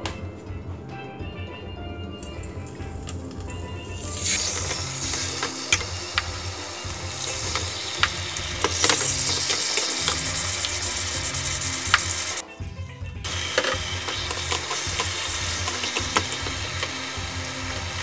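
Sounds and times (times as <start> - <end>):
meat sizzling in a frying pan: 3.0 - 12.4, 13.3 - 18.0
metal fork clicking on pan: 7.3 - 10.8, 13.5 - 17.0.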